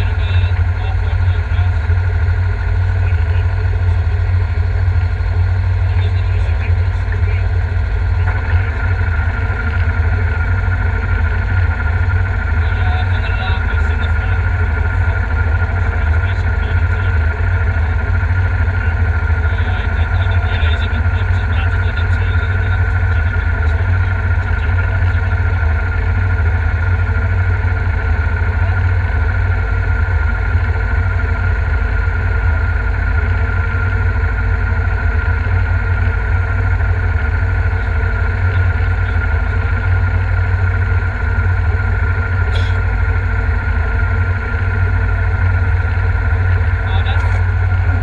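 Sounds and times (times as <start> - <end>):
car engine idling: 0.0 - 48.0.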